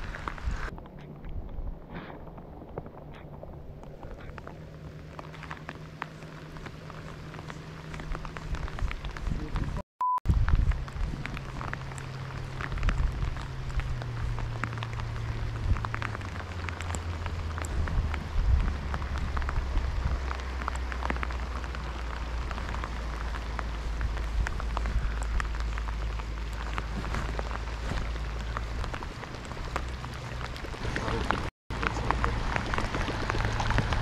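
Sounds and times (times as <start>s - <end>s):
low motor hum: 0.0s - 34.0s
rain on water and boat: 0.0s - 34.0s.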